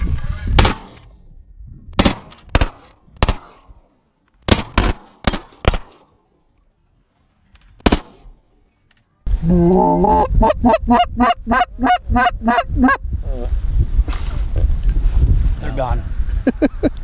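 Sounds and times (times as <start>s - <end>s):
shotgun blasts: 0.5s - 1.2s, 1.9s - 3.8s, 4.4s - 6.1s, 7.8s - 8.4s.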